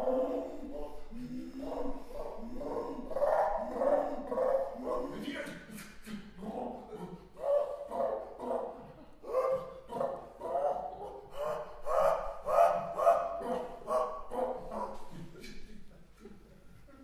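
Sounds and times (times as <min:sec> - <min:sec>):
man's vocal cries: 0:00.0 - 0:05.2.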